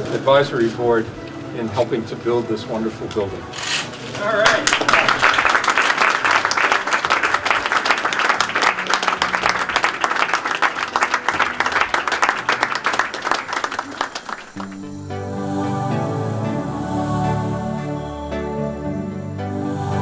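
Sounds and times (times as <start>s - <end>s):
people applauding: 4.2s - 14.9s.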